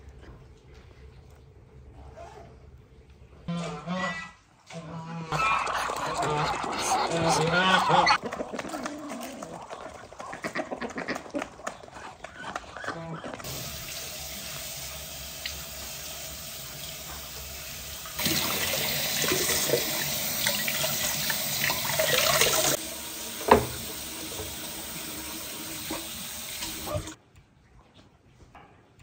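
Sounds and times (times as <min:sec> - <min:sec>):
chickens and ducks calling: 0:03.5 - 0:13.5
tap running into metal sink: 0:20.4 - 0:24.9.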